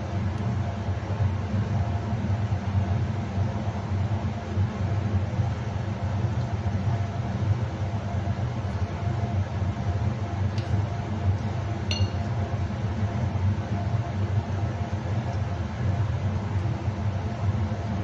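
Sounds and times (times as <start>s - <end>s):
low mechanical hum: 0.0s - 18.0s
glass clinking: 11.9s - 12.3s.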